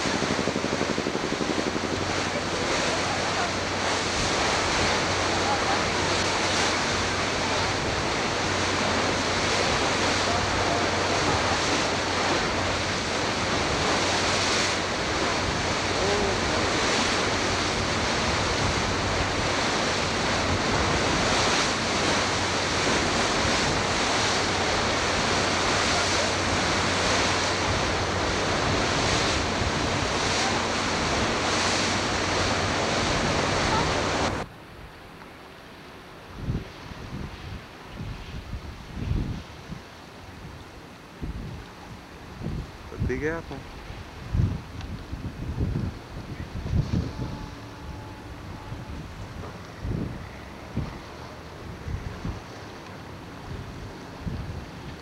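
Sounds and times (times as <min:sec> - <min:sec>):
wind on microphone: 0:00.0 - 0:35.0, 0:36.2 - 0:55.0
rushing water: 0:00.0 - 0:55.0
low steady hum: 0:37.6 - 0:55.0.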